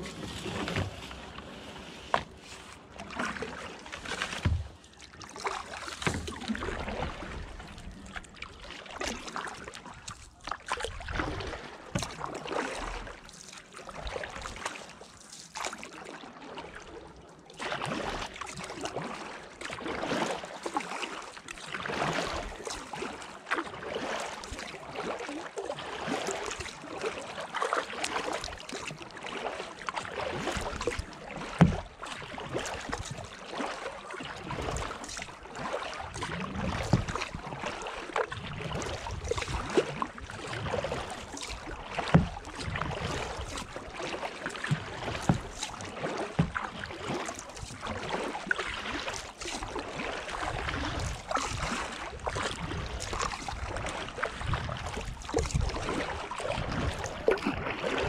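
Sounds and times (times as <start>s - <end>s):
paddle knocks: 0.0s - 8.2s, 30.4s - 31.9s, 35.7s - 37.8s, 38.9s - 47.7s
paddle splashing in water: 0.0s - 58.0s.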